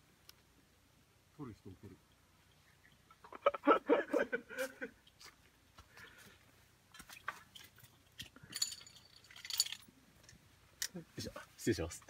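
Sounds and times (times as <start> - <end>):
rustling in a tent: 3.7 - 12.0.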